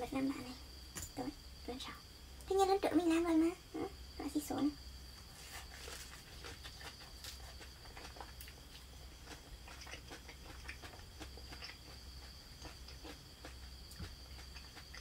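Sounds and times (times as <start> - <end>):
leaves rustling and tearing: 5.3 - 7.6
close chewing: 5.3 - 15.0.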